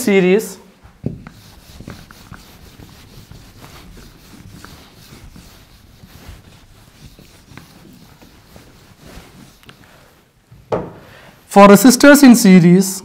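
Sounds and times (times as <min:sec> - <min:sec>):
duster scrubbing whiteboard: 0:00.8 - 0:10.3.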